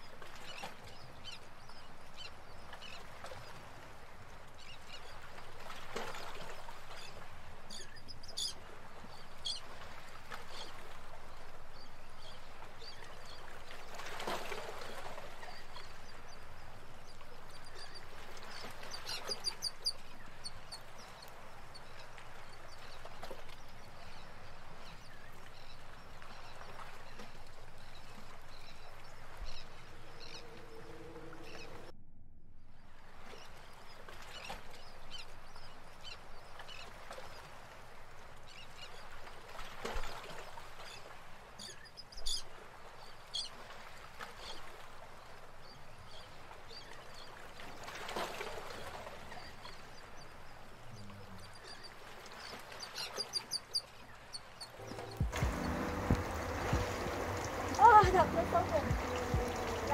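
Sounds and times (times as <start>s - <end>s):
birds chirping: 15.2s - 31.9s, 48.7s - 59.9s
feet splashing through water: 54.8s - 59.9s
river running over stones: 54.8s - 59.9s.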